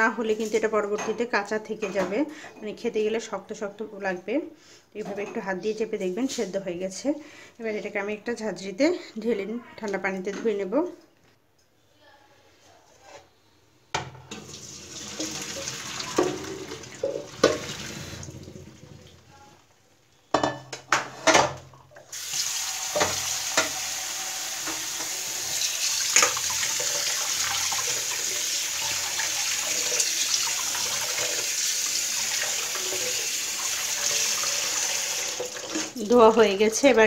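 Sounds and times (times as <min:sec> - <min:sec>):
tap water running: 0:14.0 - 0:19.4, 0:22.0 - 0:36.6
water pouring into colander: 0:14.4 - 0:19.3, 0:22.1 - 0:36.2.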